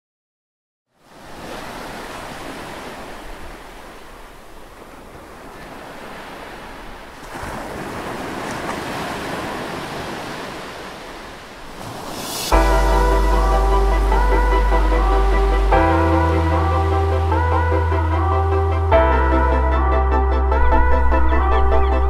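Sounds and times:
ocean surf washing in: 0:01.0 - 0:19.8
electronic music: 0:12.5 - 0:22.0.

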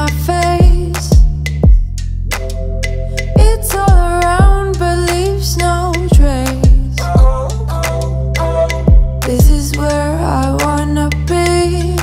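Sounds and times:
pop song with singing: 0:00.0 - 0:01.4, 0:03.1 - 0:12.0
deep kick drum hits: 0:00.6 - 0:01.9, 0:03.4 - 0:04.7, 0:06.1 - 0:07.5, 0:08.9 - 0:09.7.

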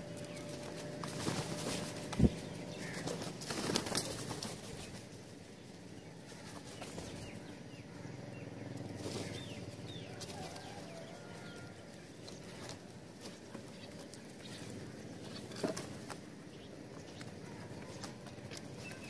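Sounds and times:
crows' wings flapping: 0:00.0 - 0:08.0, 0:08.8 - 0:19.0
faint short bird calls: 0:02.3 - 0:03.2.

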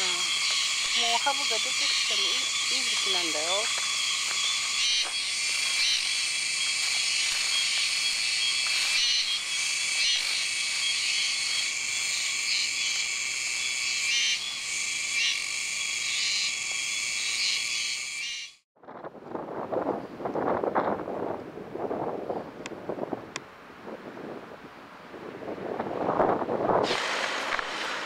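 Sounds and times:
cicadas chorus: 0:00.0 - 0:18.6
wind on microphone: 0:18.8 - 0:28.0.

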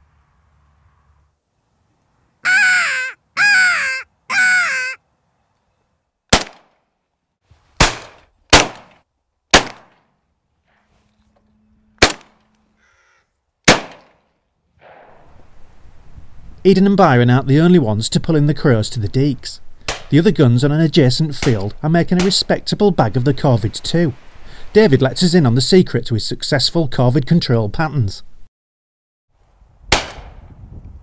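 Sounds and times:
crow call caws: 0:02.4 - 0:05.0, 0:12.7 - 0:13.4
shotgun shots: 0:06.3 - 0:06.7, 0:07.8 - 0:10.0, 0:12.0 - 0:12.4, 0:13.7 - 0:14.2, 0:29.9 - 0:30.4.

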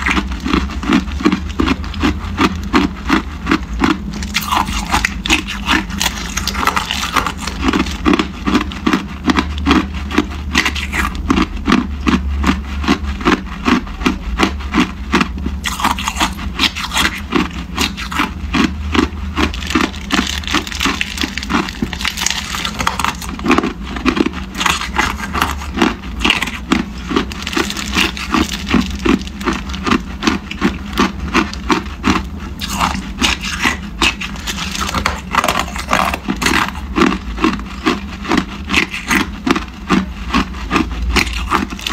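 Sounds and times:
ice being chewed: 0:00.0 - 0:41.9
plastic bag crinkling: 0:18.9 - 0:39.6.

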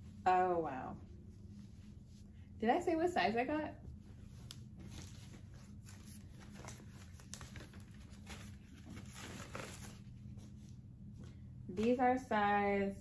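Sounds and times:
low steady hum: 0:00.0 - 0:13.0
cardboard and paper rustling: 0:04.5 - 0:10.7.

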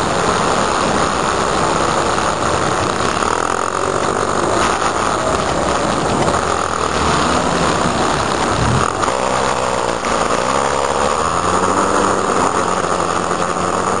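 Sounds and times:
constant hiss: 0:00.0 - 0:14.0
vehicle engine and road noise: 0:00.0 - 0:14.0.

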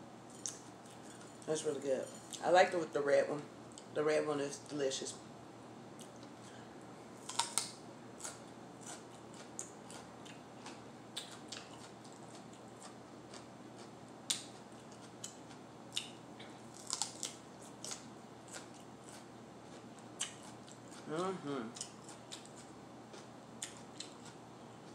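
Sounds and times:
crunching and chewing pepper: 0:00.3 - 0:02.4, 0:07.2 - 0:24.9.

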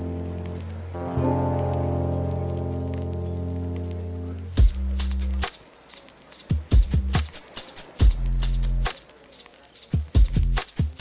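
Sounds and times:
low held chord: 0:00.0 - 0:04.6
kick drum and bass: 0:04.6 - 0:05.4, 0:06.5 - 0:07.3, 0:08.0 - 0:08.9, 0:10.0 - 0:11.0.

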